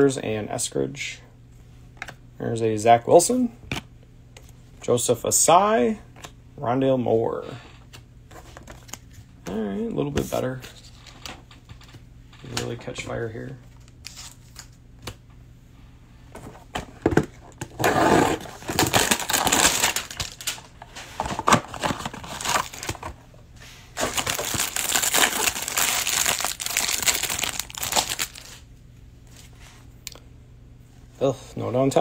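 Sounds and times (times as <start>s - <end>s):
plastic wrapping crinkling: 18.5s - 23.1s, 24.0s - 28.6s.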